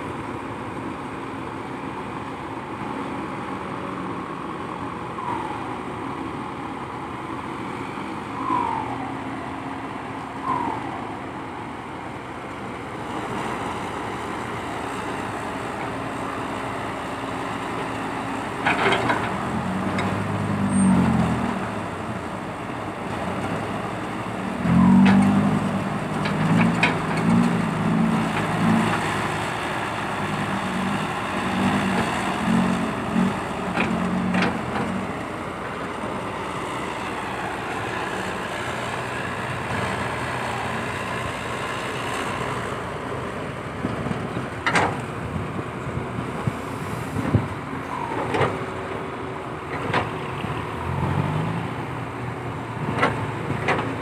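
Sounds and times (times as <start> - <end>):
diesel engine labouring: 0.0 - 54.0.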